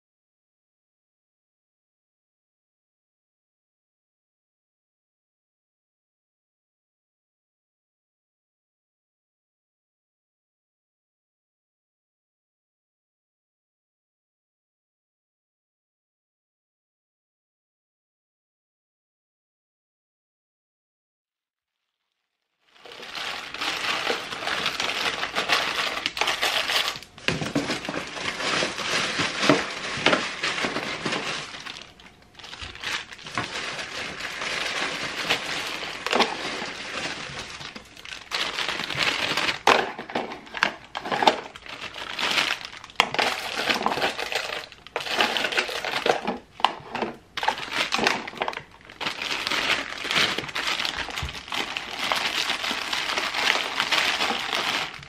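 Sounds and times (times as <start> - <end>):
plastic bags crinkling: 22.7 - 55.0.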